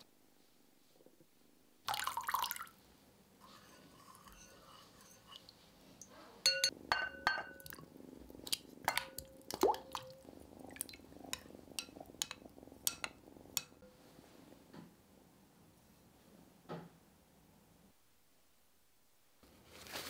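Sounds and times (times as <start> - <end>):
spatula clinking glass bowl: 3.4 - 5.5, 6.4 - 7.8, 8.9 - 10.2, 11.3 - 13.9.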